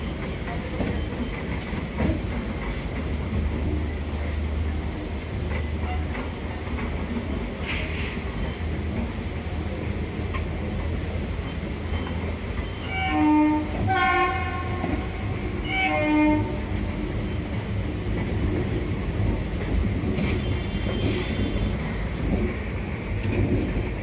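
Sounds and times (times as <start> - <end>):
train wheels rumbling on track: 0.0 - 24.0
train horn: 12.9 - 17.0.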